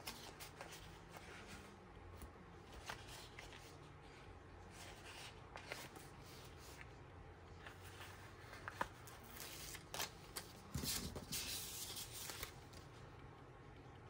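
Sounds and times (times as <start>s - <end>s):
paper sheets rustling: 2.6s - 7.0s, 7.6s - 13.0s.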